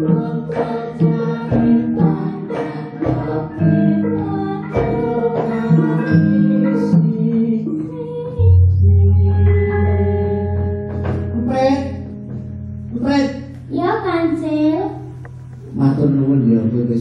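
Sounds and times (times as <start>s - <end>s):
woman singing: 0.0s - 11.0s.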